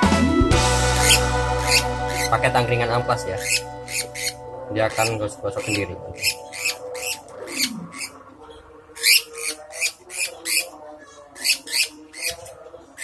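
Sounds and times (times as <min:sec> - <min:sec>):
bird shrieking: 0:00.9 - 0:02.5, 0:03.2 - 0:08.2, 0:09.0 - 0:10.8, 0:11.4 - 0:12.5.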